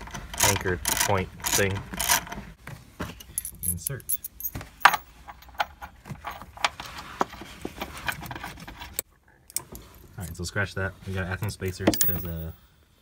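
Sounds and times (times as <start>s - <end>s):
small metal hardware clinking: 3.2s - 6.4s, 11.9s - 12.6s.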